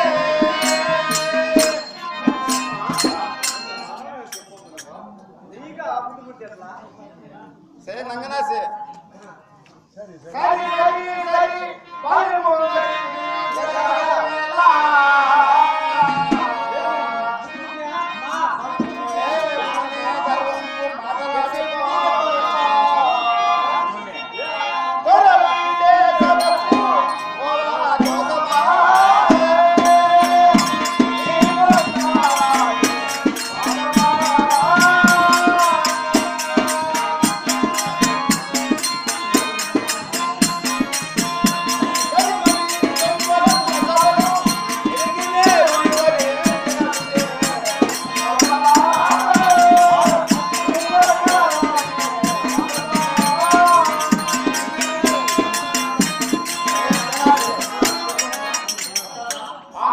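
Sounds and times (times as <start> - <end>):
hand drums beat: 0.0 - 4.9, 26.2 - 27.3, 28.0 - 59.5
jingling percussion: 0.0 - 5.1, 13.4 - 14.4, 18.2 - 21.7, 24.2 - 59.9.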